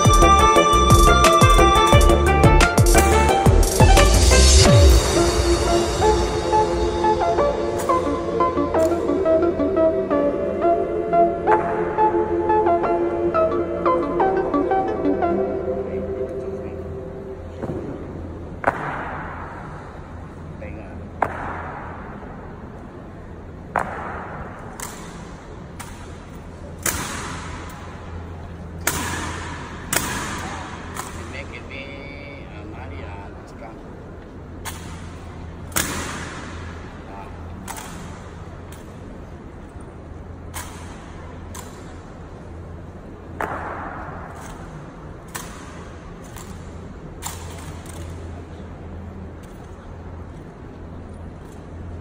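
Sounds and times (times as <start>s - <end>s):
steady low hum: 0.0s - 52.0s
rifles clacking: 44.3s - 48.4s.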